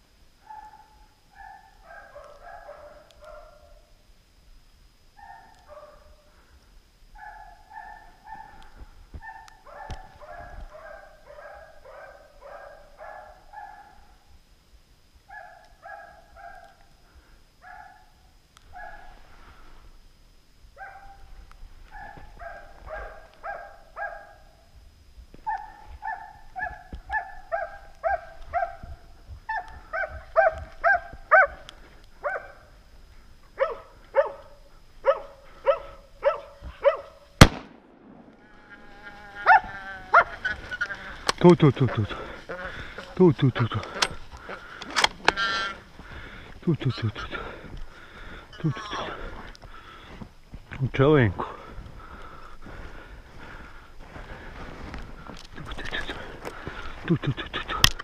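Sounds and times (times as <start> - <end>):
dogs barking: 0.4 - 3.9, 5.2 - 6.2, 7.2 - 14.2, 15.3 - 16.9, 17.6 - 19.2, 20.8 - 24.6, 25.4 - 32.8, 33.5 - 37.3, 39.4 - 41.3.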